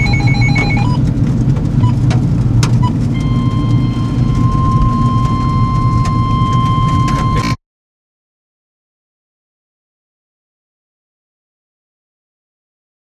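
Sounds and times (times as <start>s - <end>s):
steady high electronic tone: 0.0s - 0.9s, 3.2s - 7.6s
short electronic beeps: 0.0s - 1.0s, 3.2s - 7.6s
car road and engine noise: 0.0s - 7.6s.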